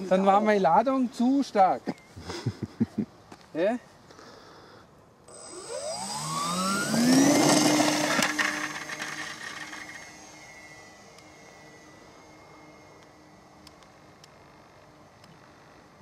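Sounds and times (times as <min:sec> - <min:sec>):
model plane motors whining: 0:05.3 - 0:16.0.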